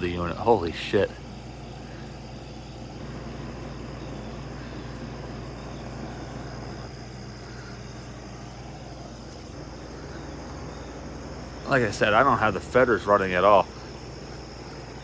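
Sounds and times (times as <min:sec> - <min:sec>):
compressor hum: 0:00.0 - 0:15.0
condenser fan rushing: 0:00.0 - 0:15.0.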